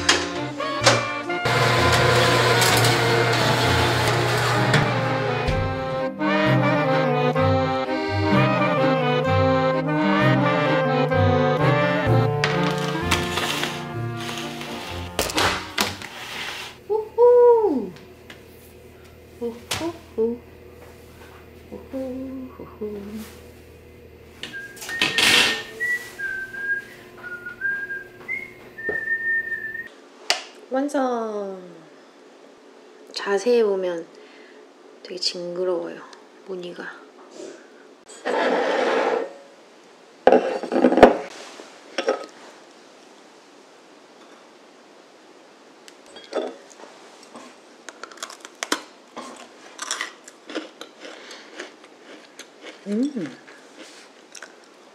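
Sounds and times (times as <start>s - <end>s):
person whistling a tune: 24.4s - 29.9s
cookie crunching being chewed: 47.2s - 54.8s.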